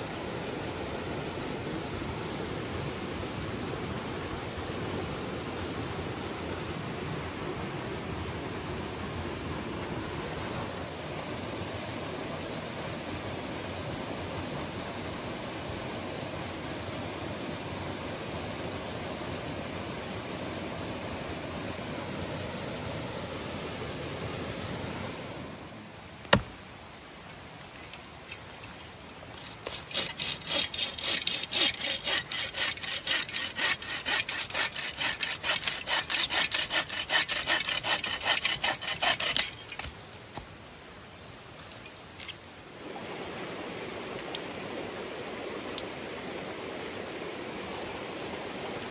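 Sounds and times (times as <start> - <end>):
rushing mountain stream: 0.0 - 48.9
hand saw cutting wood: 29.3 - 39.9.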